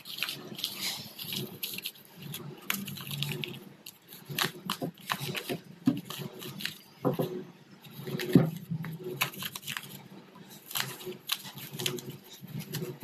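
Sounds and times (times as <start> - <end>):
twine scratching and tearing: 0.0 - 7.0, 7.8 - 13.0.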